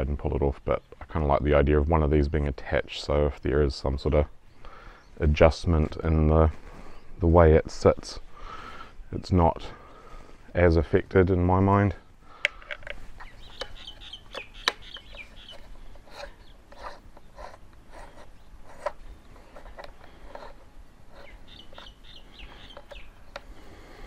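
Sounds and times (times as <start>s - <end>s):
bird chirping: 4.0s - 5.4s, 13.0s - 20.1s, 21.1s - 24.0s.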